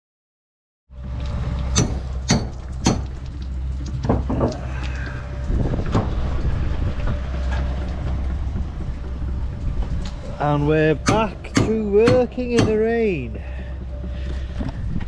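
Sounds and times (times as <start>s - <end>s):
steady low rumble: 0.9s - 15.0s
sharp knocks: 1.7s - 3.1s, 11.0s - 12.8s.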